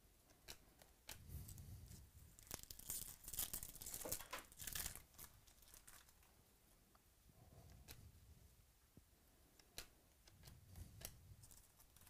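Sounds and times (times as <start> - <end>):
foil wrapper tearing and crinkling: 2.4 - 6.3.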